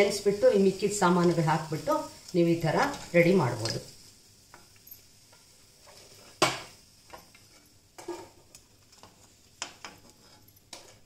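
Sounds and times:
faint sizzle of frying: 0.0 - 11.0
ladle knocking and scraping a pan: 5.3 - 11.0.

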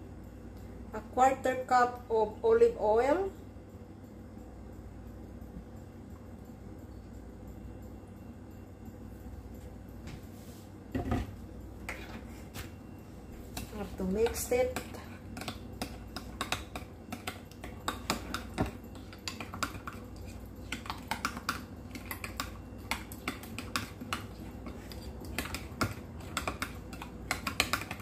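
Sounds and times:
spoon clicking and scraping bowl: 11.8 - 12.4, 13.5 - 28.0.

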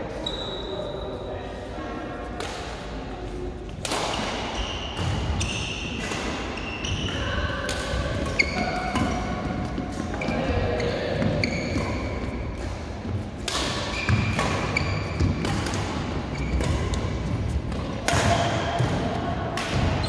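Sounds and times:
rackets hitting shuttlecock: 3.7 - 10.4, 11.2 - 20.0
shoes squeaking: 8.3 - 12.7, 13.8 - 17.7.

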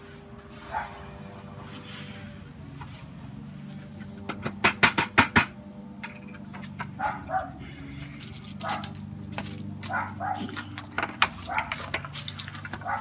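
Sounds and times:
dog barking: 0.7 - 1.0, 7.0 - 7.6, 8.6 - 8.9, 9.9 - 10.6
plastic buckets clacking: 8.3 - 13.0.

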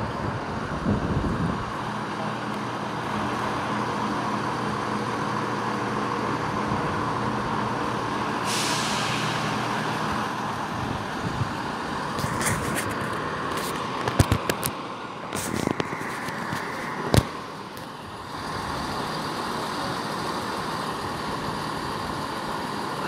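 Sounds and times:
train idling low drone: 0.0 - 23.0
air brakes hissing: 8.3 - 10.1.

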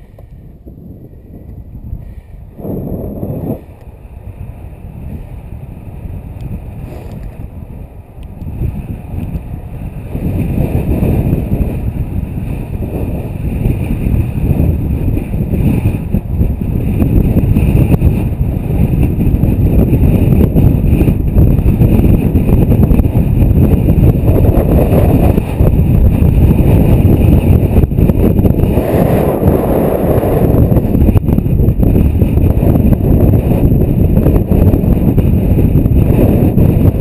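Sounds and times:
wind buffeting microphone: 0.0 - 37.0.

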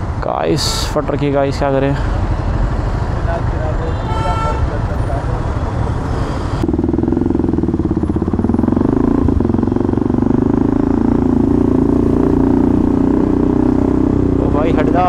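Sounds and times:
motorcycle engine pulling away: 6.6 - 15.0.

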